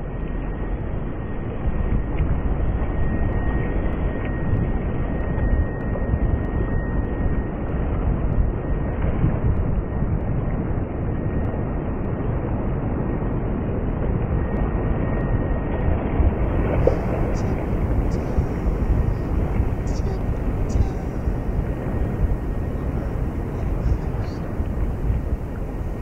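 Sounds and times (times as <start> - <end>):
low city rumble: 0.0 - 26.0
faint high tone: 16.8 - 24.5.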